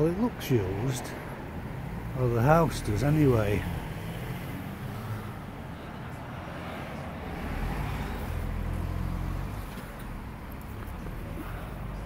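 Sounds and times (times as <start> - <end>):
car engine rumble passing: 0.0 - 12.0.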